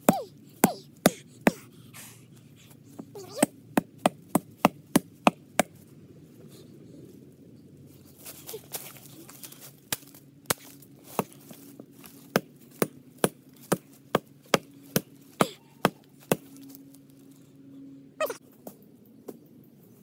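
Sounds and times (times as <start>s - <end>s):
blade chopping tree trunk: 0.0s - 1.6s, 3.2s - 5.8s, 9.9s - 16.7s.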